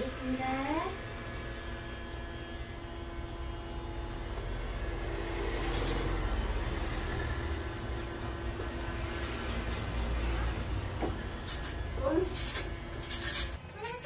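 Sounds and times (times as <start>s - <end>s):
electric hair clipper humming: 0.0s - 14.0s.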